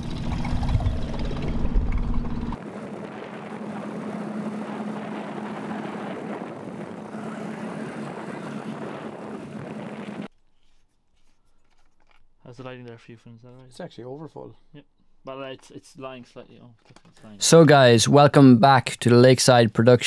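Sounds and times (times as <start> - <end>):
outboard motor droning: 0.0 - 10.3.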